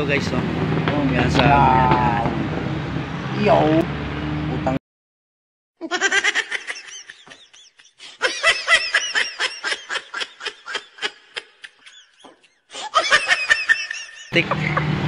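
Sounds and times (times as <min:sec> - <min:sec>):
person laughing hard: 0:05.8 - 0:15.0.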